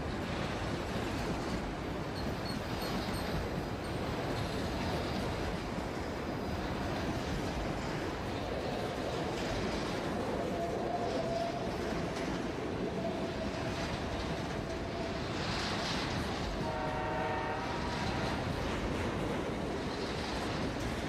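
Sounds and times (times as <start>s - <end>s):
freight train rumbling: 0.0s - 21.0s
train horn chord: 16.6s - 18.5s.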